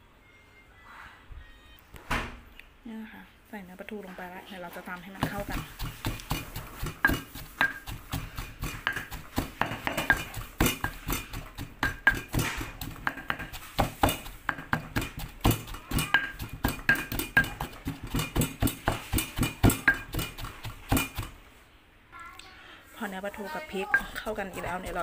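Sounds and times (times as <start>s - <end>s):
stone pestle pounding in mortar: 5.2s - 21.4s, 23.8s - 25.0s.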